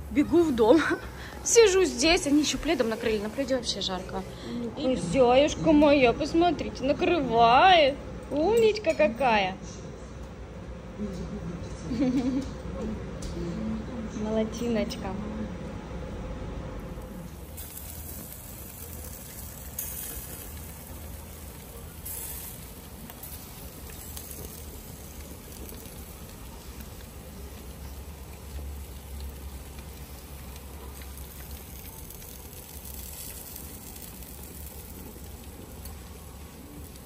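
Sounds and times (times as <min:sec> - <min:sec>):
meat sizzling on a grill: 0:16.9 - 0:37.0.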